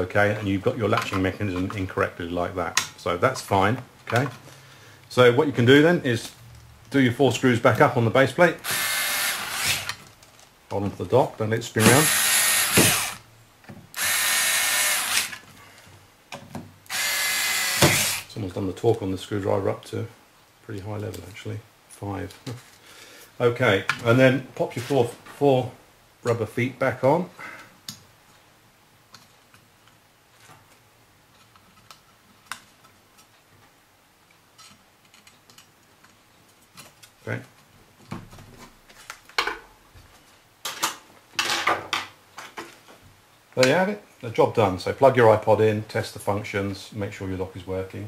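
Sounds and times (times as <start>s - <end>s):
electric screwdriver driving screws: 8.6s - 10.0s, 11.8s - 13.2s, 14.0s - 15.4s, 16.9s - 18.3s.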